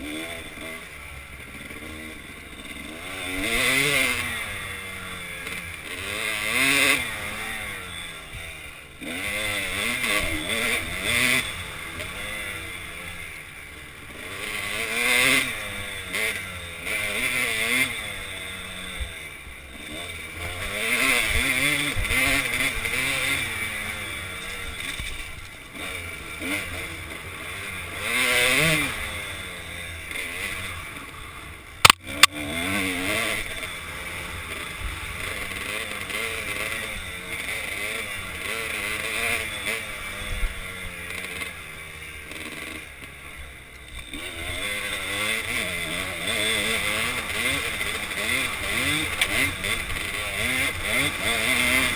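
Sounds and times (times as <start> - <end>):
dirt bike engine revving: 0.0 - 51.9
sharp double click: 31.8 - 32.3.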